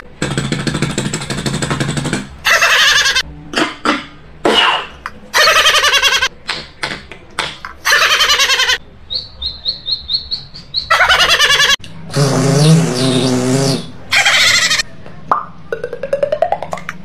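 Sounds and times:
beatboxer squawking calls: 2.4s - 3.2s, 10.8s - 14.8s
mouth clicks: 6.4s - 7.8s.

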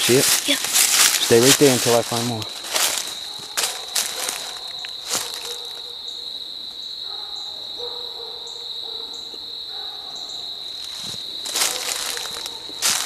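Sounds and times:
dry leaves crunching: 0.0s - 5.8s, 10.8s - 13.0s
crickets trilling: 0.0s - 13.0s.

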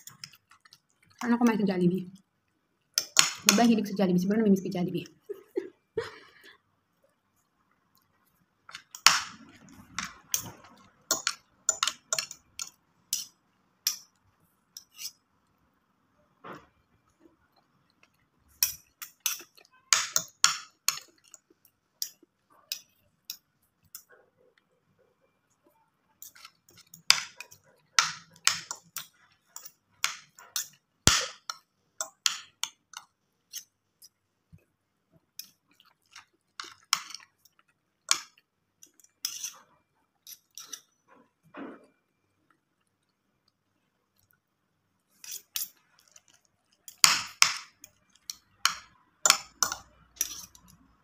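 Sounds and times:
cutlery clinking on a plate: 10.0s - 13.3s, 46.9s - 50.8s.

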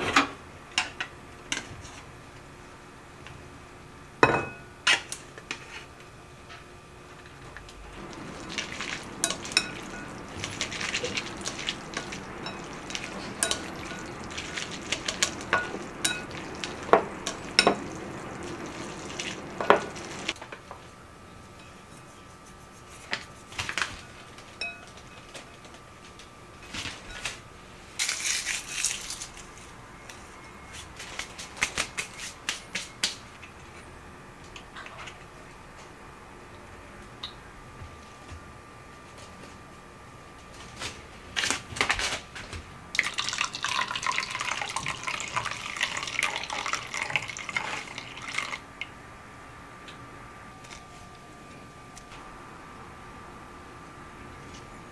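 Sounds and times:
wet stirring of noodles: 8.0s - 20.4s, 43.0s - 48.9s.

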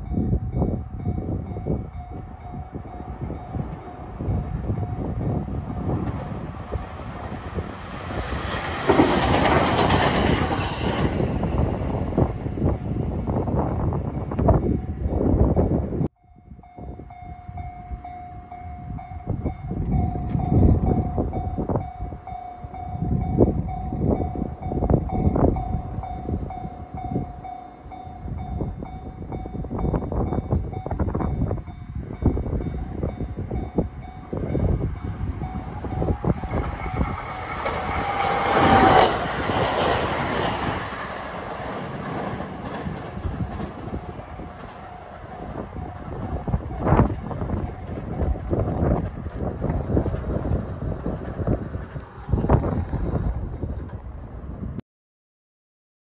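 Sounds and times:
level crossing warning bell: 0.0s - 6.0s, 16.1s - 41.3s
electric train passing: 0.0s - 54.7s
wind buffeting microphone: 0.0s - 54.8s.

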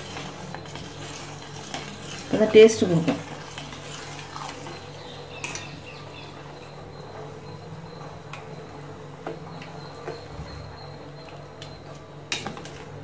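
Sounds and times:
ladle stirring in steel pot: 0.0s - 6.8s
steady low hum: 0.0s - 13.0s.

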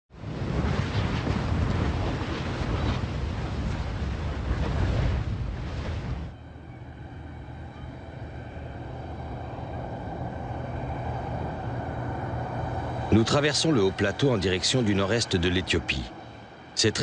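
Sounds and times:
lava surging and spattering: 0.1s - 6.3s
vehicles humming on road: 6.3s - 16.9s.

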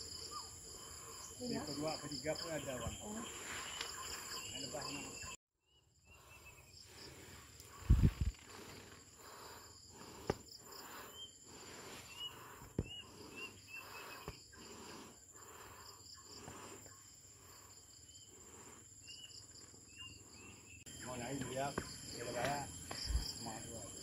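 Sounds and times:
insects buzzing and trilling: 0.0s - 24.0s
footsteps rustling on forest trail: 3.2s - 4.7s.

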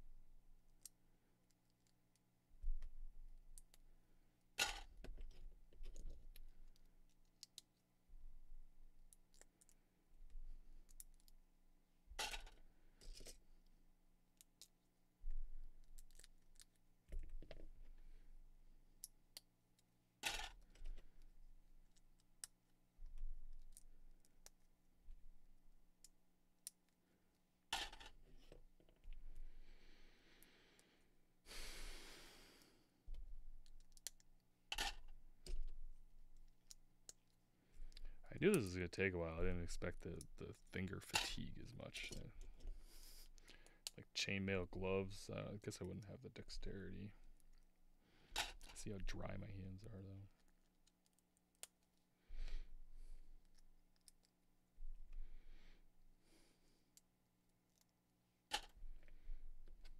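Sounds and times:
plastic pieces clicking and rattling: 19.0s - 21.0s.

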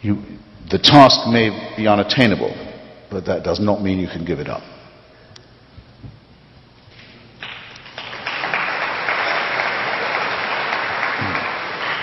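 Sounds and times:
audience applause: 7.4s - 12.0s.

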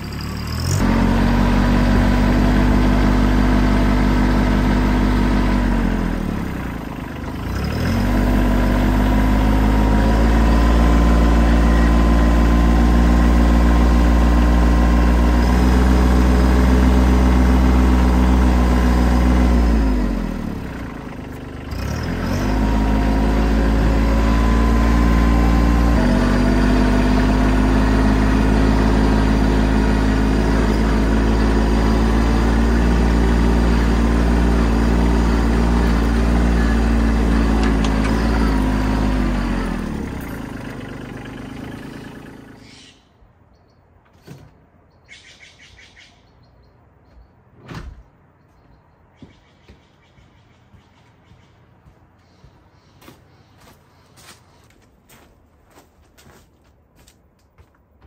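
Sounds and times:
lawn tractor engine running: 0.0s - 42.8s.

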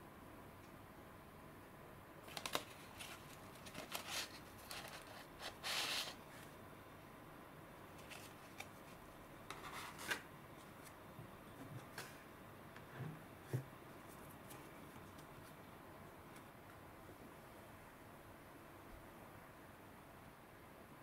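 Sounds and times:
cardboard and paper rustling: 2.2s - 6.2s, 8.0s - 11.0s
paper tearing rustle: 2.3s - 6.2s.

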